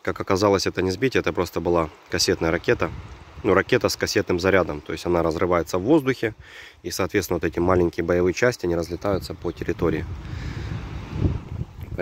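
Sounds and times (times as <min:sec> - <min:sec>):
wind buffeting microphone: 0:02.2 - 0:04.8, 0:08.8 - 0:12.0.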